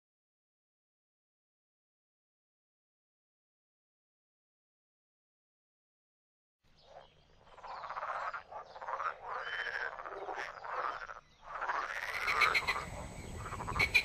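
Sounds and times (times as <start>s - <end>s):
frogs croaking in chorus: 6.8s - 14.0s
short high-pitched frog calls: 7.8s - 14.0s.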